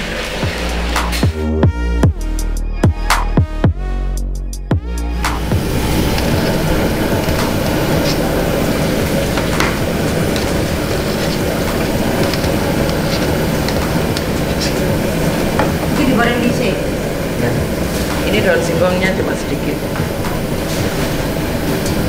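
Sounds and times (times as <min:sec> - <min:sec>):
water boiling: 0:00.0 - 0:01.4, 0:05.0 - 0:22.0
gas stove burner rushing: 0:00.0 - 0:01.5, 0:05.0 - 0:22.0.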